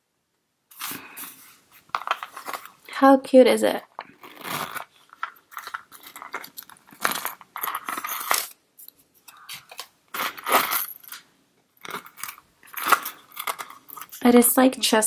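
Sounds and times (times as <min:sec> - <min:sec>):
zip rattling: 0:04.0 - 0:08.5
metal clasp and chain clinking: 0:04.0 - 0:08.6, 0:10.1 - 0:11.2, 0:11.8 - 0:14.2.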